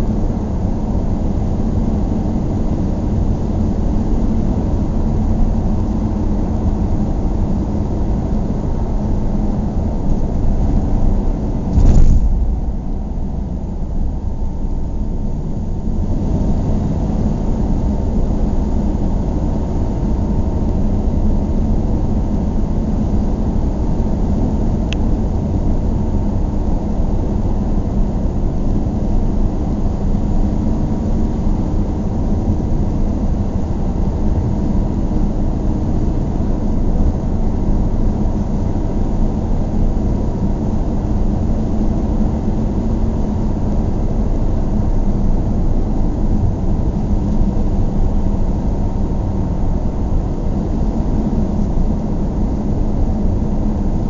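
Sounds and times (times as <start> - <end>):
car driving on highway: 8.4 - 19.4.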